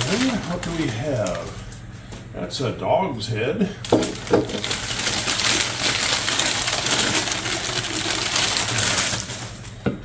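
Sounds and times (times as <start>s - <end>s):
newspaper crumpling and rustling: 0.0s - 1.8s, 3.9s - 9.8s.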